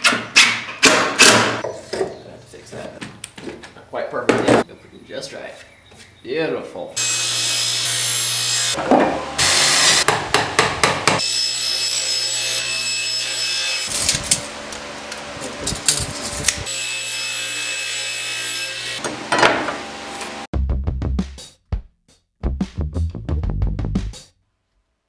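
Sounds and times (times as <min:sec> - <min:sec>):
knocks and scraping of wood: 0:00.0 - 0:04.7
table saw cutting wood: 0:07.0 - 0:20.5.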